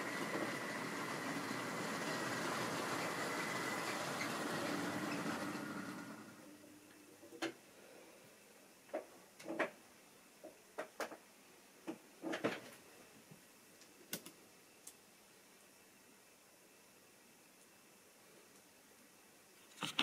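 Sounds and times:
model train motor hum: 0.0s - 6.6s.

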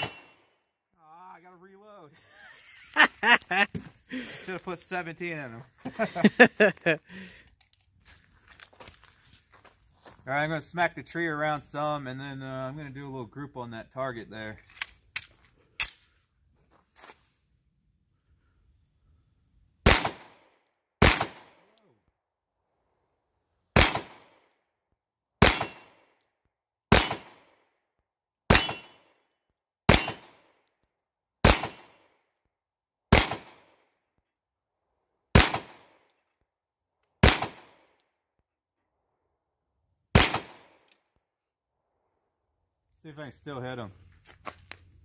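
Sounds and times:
pistol shots: 0.0s - 0.4s, 19.8s - 21.8s, 23.8s - 24.4s, 25.4s - 26.0s, 26.9s - 27.6s, 28.5s - 29.0s, 29.9s - 30.3s, 31.4s - 32.0s, 33.1s - 33.8s, 35.3s - 36.1s, 37.2s - 37.9s, 40.1s - 40.8s
steel target ringing: 0.0s - 0.4s, 28.5s - 29.0s.

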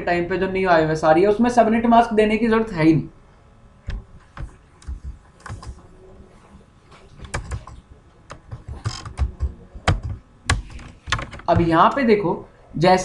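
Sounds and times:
keyboard keys clicking: 7.2s - 12.0s.

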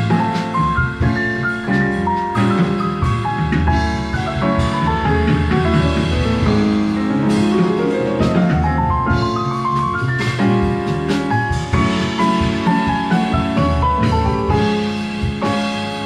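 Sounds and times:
drum kit with cymbals: 0.0s - 16.0s
jazz piano: 0.0s - 16.0s
upright bass: 0.0s - 16.0s.

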